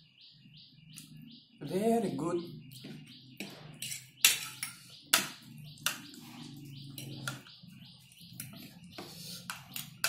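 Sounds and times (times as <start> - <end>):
utensils clicking on a plate: 8.4 - 10.0.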